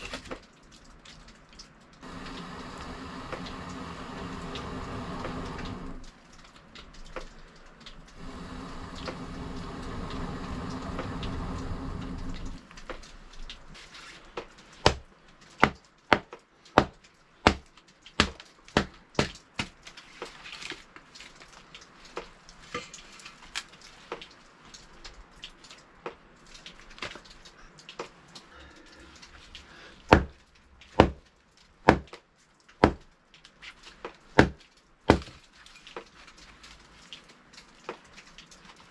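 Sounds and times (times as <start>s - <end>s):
steady rushing noise: 2.0s - 6.0s, 8.1s - 12.7s
firewood chopping: 14.8s - 15.0s, 15.6s - 17.6s, 31.9s - 32.2s, 34.4s - 35.3s.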